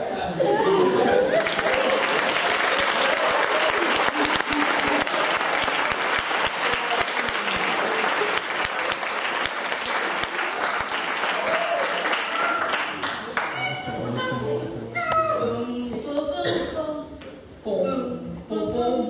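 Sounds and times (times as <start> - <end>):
audience clapping: 1.2 - 13.9.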